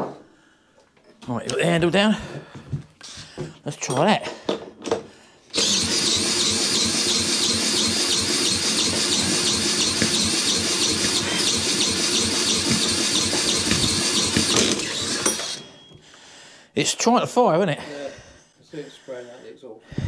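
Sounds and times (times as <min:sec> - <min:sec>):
engine turning over: 0:05.5 - 0:15.7
cordless drill spinning: 0:05.5 - 0:16.0.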